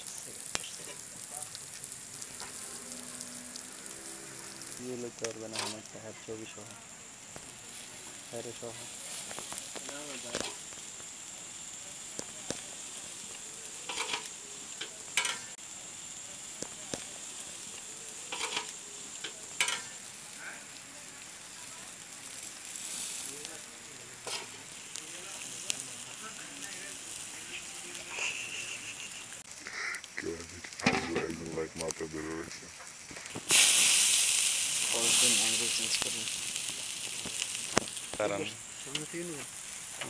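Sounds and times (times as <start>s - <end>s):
charcoal fire crackling: 0.0s - 40.0s
fish sizzling on a grill: 0.0s - 40.0s.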